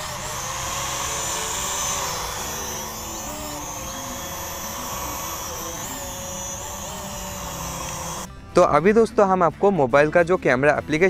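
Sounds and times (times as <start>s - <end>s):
drone buzzing whine: 0.0s - 8.5s.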